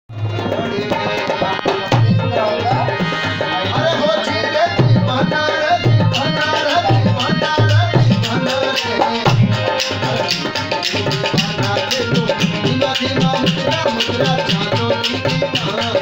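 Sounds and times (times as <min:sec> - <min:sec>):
hand drum beat: 0:04.7 - 0:16.0.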